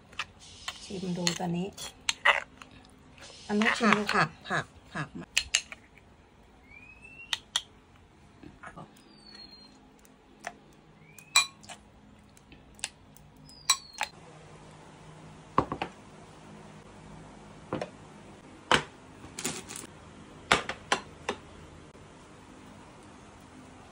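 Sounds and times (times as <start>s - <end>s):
spoon scraping stone mortar: 0.1s - 2.8s, 3.5s - 4.4s.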